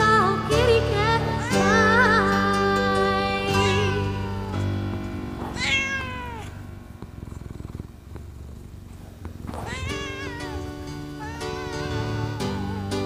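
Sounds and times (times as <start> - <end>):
backing music track: 0.0 - 13.0
cat purring: 1.3 - 13.0
cat meowing: 3.5 - 4.6, 5.4 - 6.7, 9.4 - 13.0.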